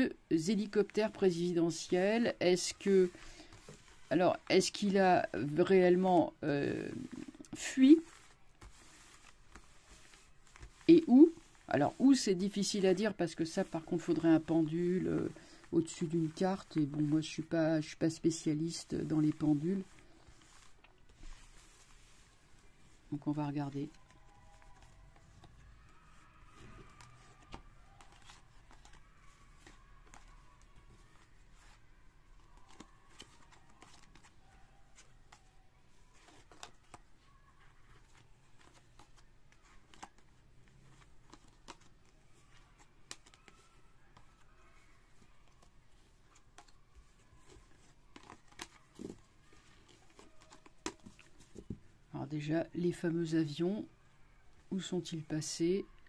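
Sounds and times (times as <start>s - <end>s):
cards being shuffled: 0.6s - 52.1s.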